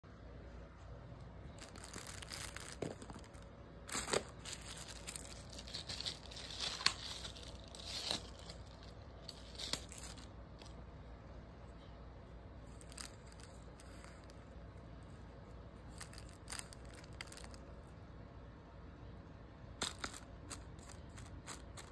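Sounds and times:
plastic wrapping crinkling and tearing: 1.5 - 10.8, 15.9 - 17.6.

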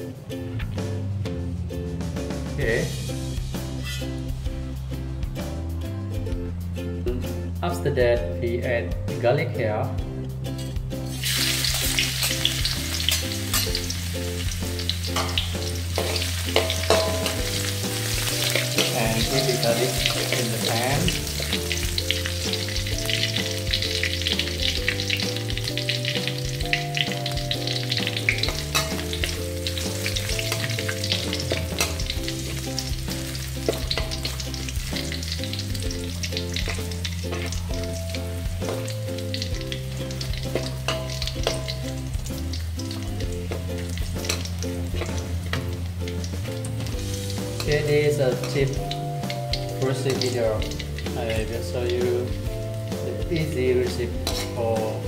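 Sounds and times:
garlic sizzling in hot oil: 10.3 - 55.0
spatula stirring in a wok: 10.6 - 27.1, 27.7 - 39.0, 39.7 - 42.3.

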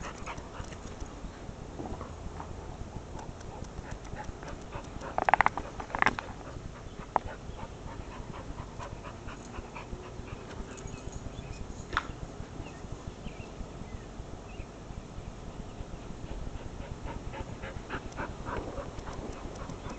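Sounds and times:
dog panting: 0.0 - 11.7, 15.8 - 19.9.

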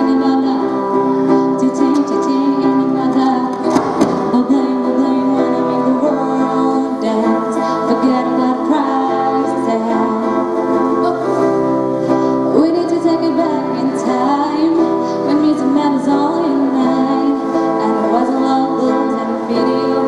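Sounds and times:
acoustic guitars: 0.0 - 20.0
woman singing: 0.0 - 20.0.

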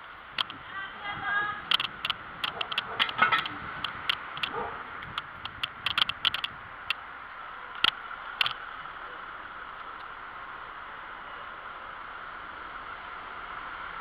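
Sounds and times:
bicycle rattling over brick paving: 0.3 - 6.6.

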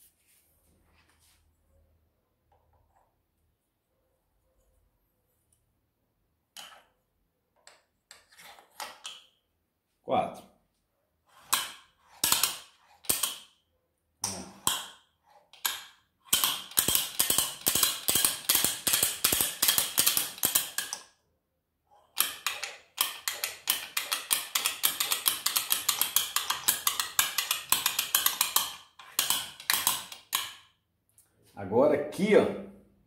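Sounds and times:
ratchet-like clicking: 15.6 - 21.0, 22.1 - 30.6.

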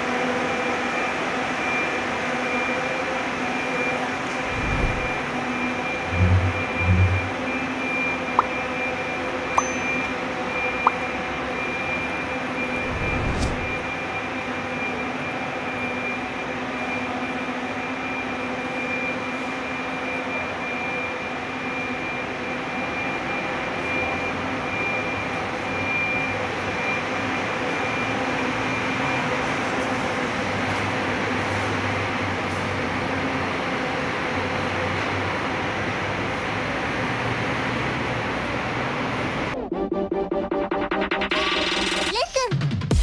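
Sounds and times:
bus engine drone: 0.0 - 42.1
high whine: 3.6 - 17.3.

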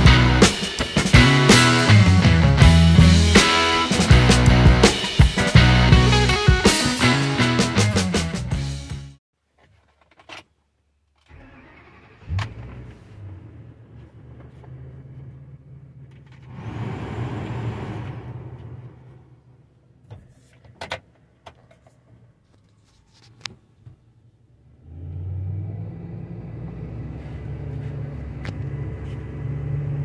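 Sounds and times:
engine cranking and idling: 11.2 - 19.6
rushing swell: 16.4 - 19.6.

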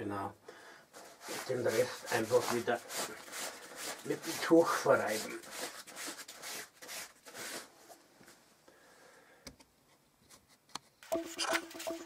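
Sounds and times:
cloth rubbing fabric: 0.9 - 8.0.

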